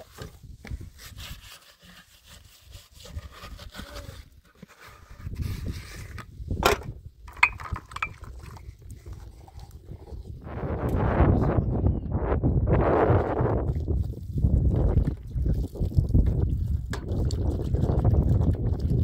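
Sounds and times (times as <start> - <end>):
plastic bucket handled over metal tray: 0.0 - 1.2.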